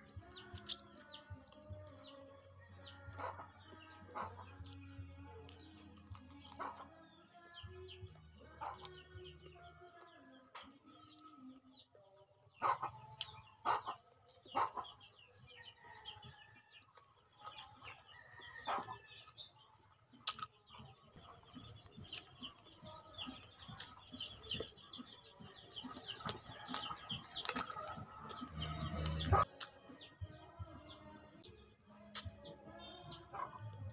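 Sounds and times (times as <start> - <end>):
birds chirping: 0.0 - 33.9
sucking and chewing: 0.4 - 2.0, 4.2 - 6.8, 20.1 - 29.9, 32.1 - 32.4
mouth smacks and clicks: 32.1 - 32.4.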